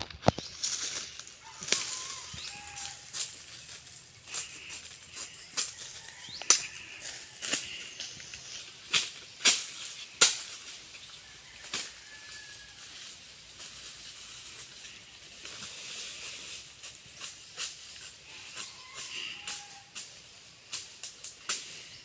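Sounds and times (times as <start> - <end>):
dry sticks snapping: 0.0 - 5.8
footsteps through leafy undergrowth: 0.0 - 21.1.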